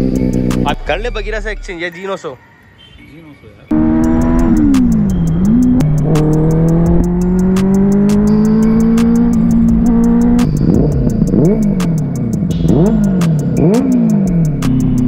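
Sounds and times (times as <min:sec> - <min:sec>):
motorcycle engine revving: 0:00.0 - 0:00.9, 0:03.7 - 0:15.0
music with steady beat: 0:03.7 - 0:15.0.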